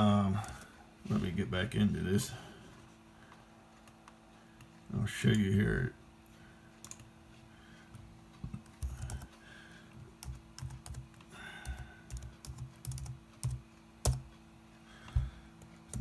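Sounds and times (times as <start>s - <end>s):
faint steady hum: 0.0s - 16.0s
laptop keyboard typing: 6.8s - 7.1s, 8.4s - 9.4s, 10.2s - 14.3s.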